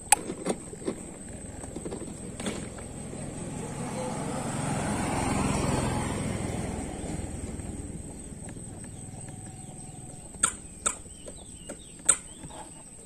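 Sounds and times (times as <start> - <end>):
sharp clicks: 10.2 - 12.5.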